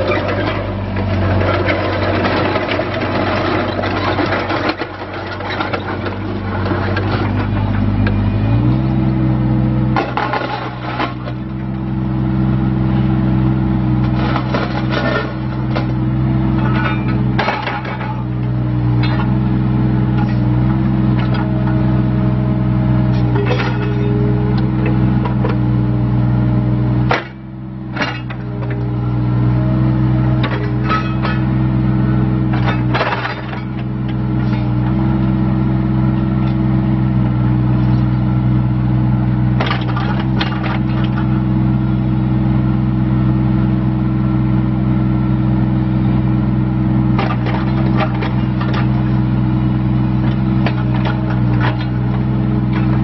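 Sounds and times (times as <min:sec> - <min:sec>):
diesel engine running: 0:00.0 - 0:53.0
metallic clanks: 0:14.1 - 0:19.4, 0:23.1 - 0:25.6, 0:30.4 - 0:31.7, 0:32.4 - 0:35.1, 0:50.2 - 0:53.0.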